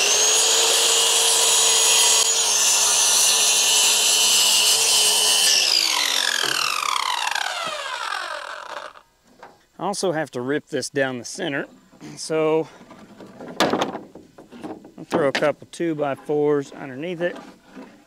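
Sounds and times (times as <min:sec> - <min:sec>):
circular saw cutting wood: 0:00.0 - 0:09.0
saw motor winding down: 0:00.0 - 0:09.0.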